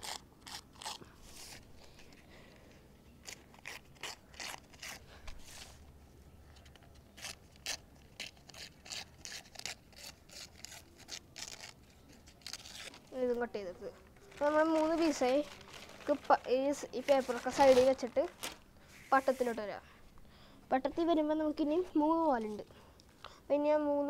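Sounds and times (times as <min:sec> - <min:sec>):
paper being cut: 0:00.0 - 0:01.6, 0:03.2 - 0:05.7, 0:07.2 - 0:11.8.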